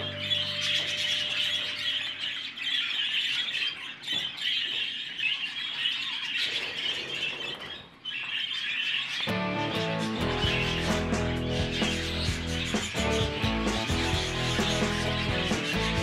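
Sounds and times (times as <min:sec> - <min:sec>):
budgerigars chattering: 0:00.0 - 0:16.0.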